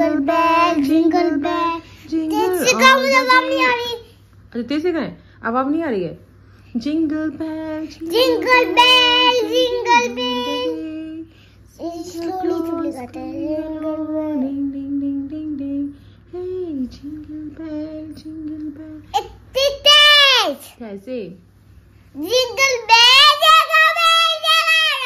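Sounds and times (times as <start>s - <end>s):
girl singing: 0.0s - 4.0s, 7.1s - 19.8s.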